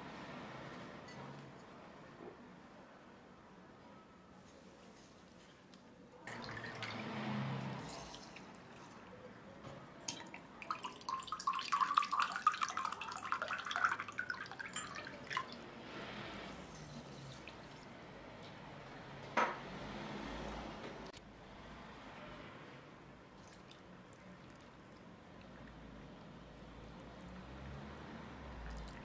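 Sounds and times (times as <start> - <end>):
vinegar pouring into a jar: 6.3 - 9.0, 10.1 - 15.7.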